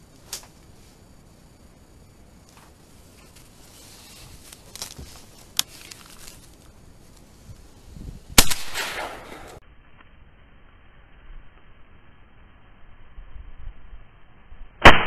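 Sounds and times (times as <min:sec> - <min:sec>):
shotgun shot: 0:08.4 - 0:09.6.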